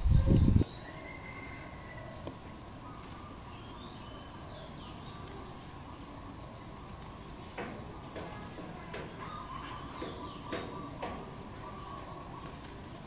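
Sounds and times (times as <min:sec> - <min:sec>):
faint bird chirps: 0:00.0 - 0:07.6, 0:09.1 - 0:13.0
outdoor background hiss: 0:00.0 - 0:13.0
dove wings flapping: 0:12.4 - 0:13.0.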